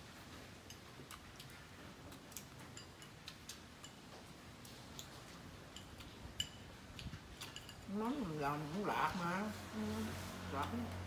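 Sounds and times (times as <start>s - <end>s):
chewing: 0.2s - 7.9s.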